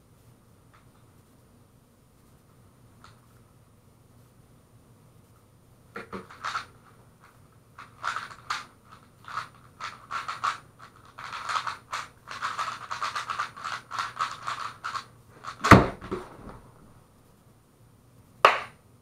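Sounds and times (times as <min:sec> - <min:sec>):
loud thump: 0:15.6 - 0:16.7.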